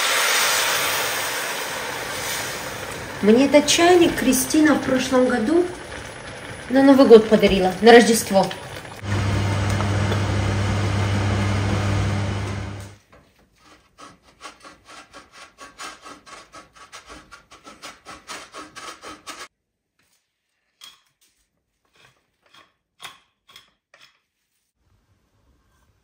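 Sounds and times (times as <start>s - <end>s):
cheese rasping on hand grater: 13.6s - 19.5s.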